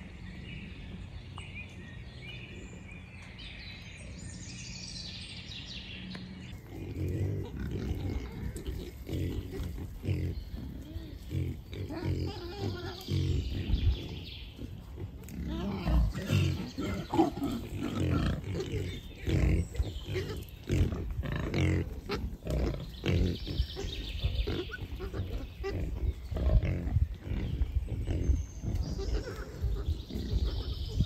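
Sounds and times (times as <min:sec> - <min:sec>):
wild boars grunting: 0:06.5 - 0:31.0.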